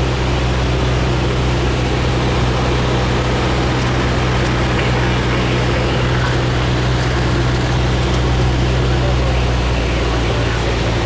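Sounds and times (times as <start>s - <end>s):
aircraft engine and propeller drone: 0.0s - 11.0s
airflow noise: 0.0s - 11.0s.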